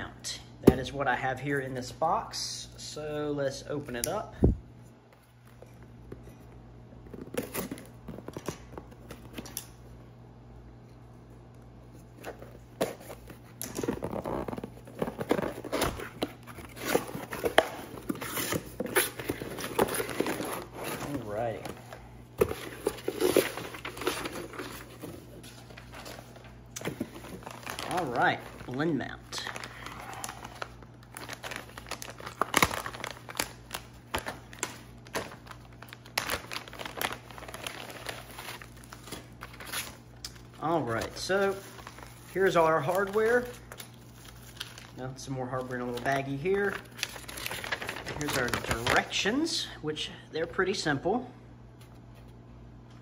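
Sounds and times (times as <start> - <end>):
packaging rustling: 12.0 - 49.2.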